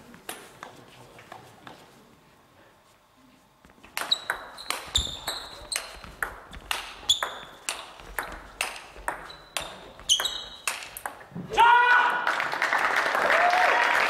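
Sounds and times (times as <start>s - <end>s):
table tennis ball hits: 3.8s - 11.5s.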